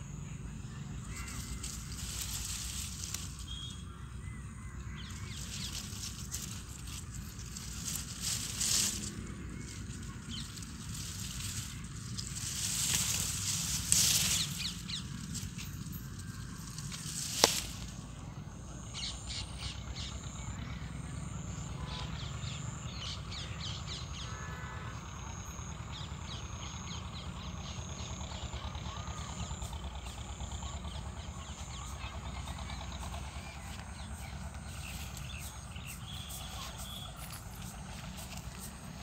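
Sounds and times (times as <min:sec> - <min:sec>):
birds chirping: 0:00.0 - 0:39.0
lower bird calls: 0:00.0 - 0:39.0
steady low rumble: 0:00.0 - 0:39.0.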